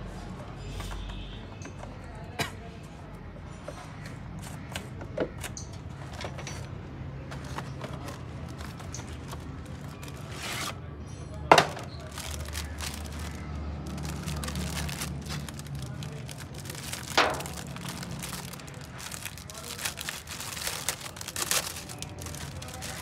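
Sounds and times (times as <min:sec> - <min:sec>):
tools and parts clinking: 0:05.4 - 0:13.2, 0:14.0 - 0:23.0
cardboard box rustling: 0:07.3 - 0:10.8, 0:12.0 - 0:23.0.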